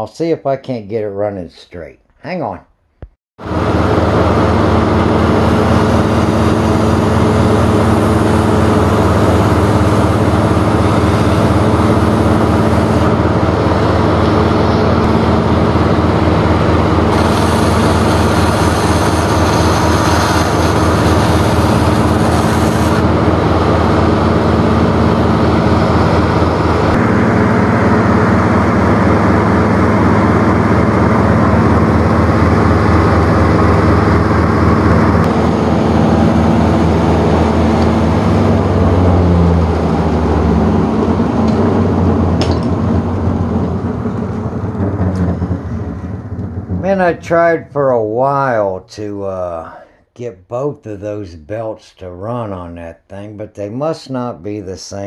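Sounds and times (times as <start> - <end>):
treadmill motor humming: 3.5 - 46.9
metal being sanded hiss: 17.1 - 23.0.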